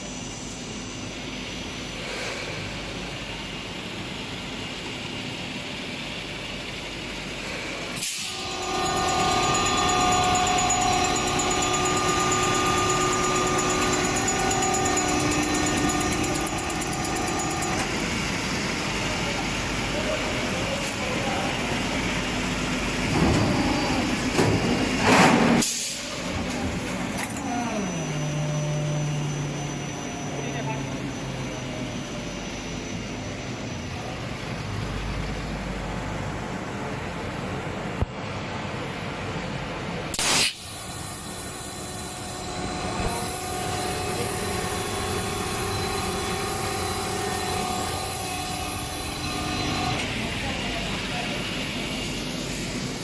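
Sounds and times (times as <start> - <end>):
machine running noise: 0.0 - 53.0
machine hum: 6.5 - 25.0, 40.6 - 53.0
short loud hiss: 40.2 - 40.7
loud hiss: 40.2 - 44.2.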